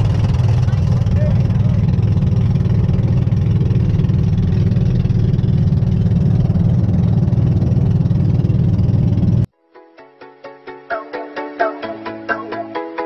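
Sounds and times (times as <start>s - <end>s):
boat engine droning: 0.0s - 9.5s.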